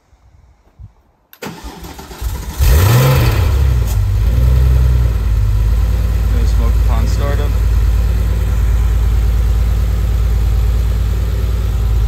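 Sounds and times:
starter motor cranking: 0:01.4 - 0:04.0
car engine revving and idling: 0:02.2 - 0:12.0.

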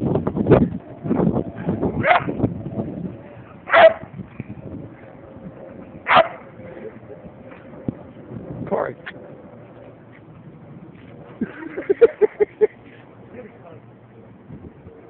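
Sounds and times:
dog barking: 0:03.7 - 0:04.1, 0:06.1 - 0:06.4.

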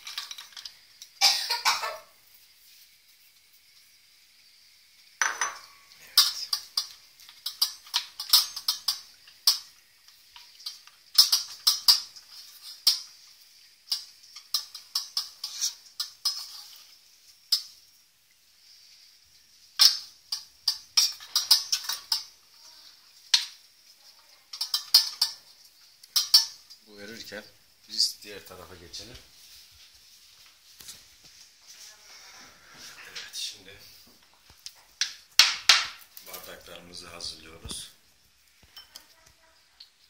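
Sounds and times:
metal spoon scraping a pot: 0:13.9 - 0:17.7, 0:19.8 - 0:22.3.

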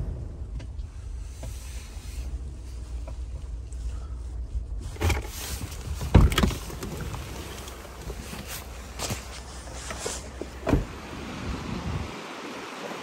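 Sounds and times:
low rumble in truck cab: 0:00.0 - 0:12.1
car door thump: 0:10.6 - 0:11.0.

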